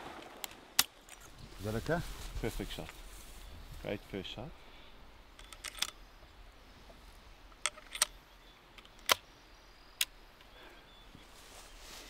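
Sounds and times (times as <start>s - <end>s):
rifle metallic clicks: 5.3s - 6.1s, 7.5s - 9.3s.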